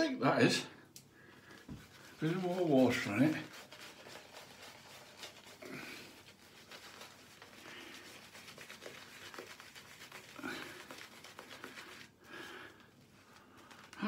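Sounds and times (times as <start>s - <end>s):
fingers rubbing lather into beard: 1.4s - 12.2s.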